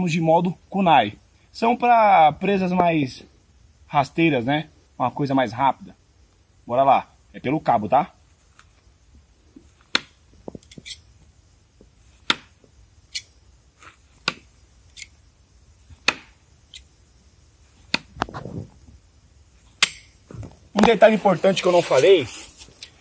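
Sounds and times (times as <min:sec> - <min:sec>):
knives striking wooden target: 0:09.8 - 0:10.9, 0:12.2 - 0:13.3, 0:14.2 - 0:15.1, 0:16.0 - 0:16.4, 0:17.9 - 0:18.1, 0:19.8 - 0:20.2.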